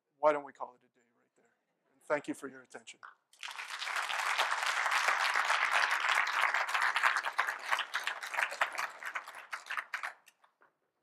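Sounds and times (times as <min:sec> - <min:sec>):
audience applauding: 0:03.4 - 0:10.3.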